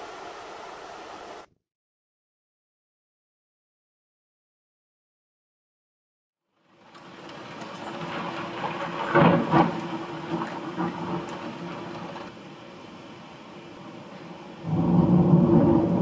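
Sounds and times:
heavy rain: 0.0 - 1.5, 6.6 - 16.0
gusting wind: 6.8 - 16.0.

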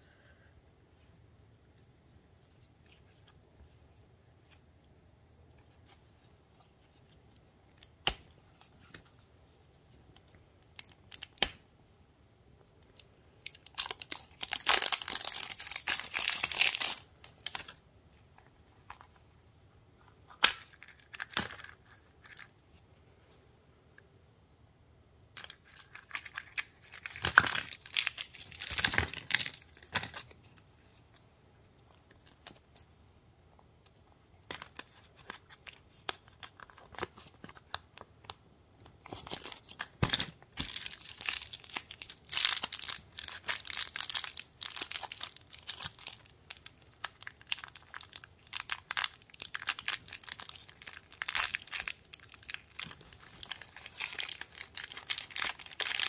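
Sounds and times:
plastic packaging crinkling and tearing: 13.4 - 17.8, 25.4 - 30.6, 34.4 - 38.1, 39.0 - 56.0.

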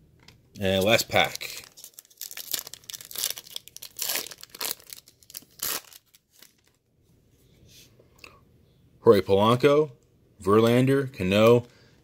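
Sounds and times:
foil wrapper tearing and crinkling: 0.8 - 6.8.

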